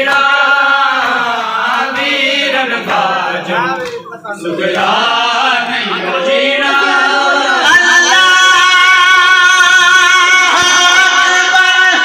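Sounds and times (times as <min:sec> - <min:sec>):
person singing a lament: 0:05.3 - 0:12.0.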